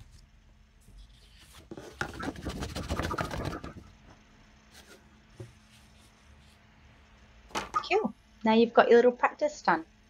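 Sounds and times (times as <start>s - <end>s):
scratchy rubbing on paper: 0.9s - 3.8s, 4.7s - 6.7s.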